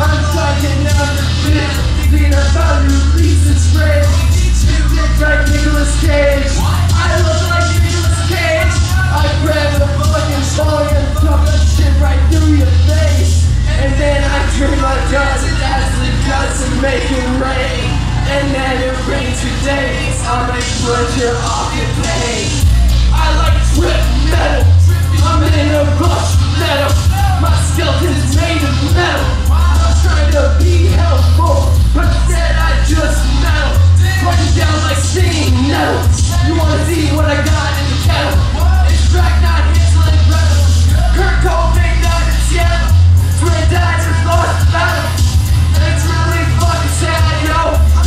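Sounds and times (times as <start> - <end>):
heavy bass drone: 0.0 - 48.0
loud electronic music: 0.0 - 48.0
man yelling into microphone: 23.2 - 45.2.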